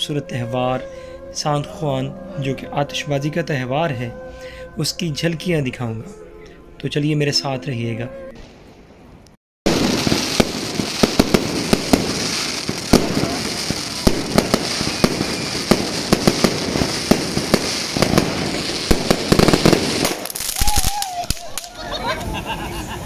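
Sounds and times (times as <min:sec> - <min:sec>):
fireworks cracks and bangs: 0:09.7 - 0:22.3
fireworks crackling: 0:09.7 - 0:22.6.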